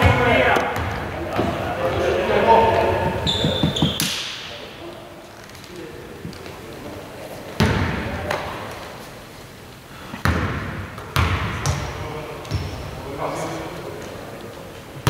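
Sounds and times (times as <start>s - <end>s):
basketball bouncing on indoor court: 0.0s - 2.0s, 2.6s - 4.5s, 7.6s - 8.5s, 10.2s - 12.9s.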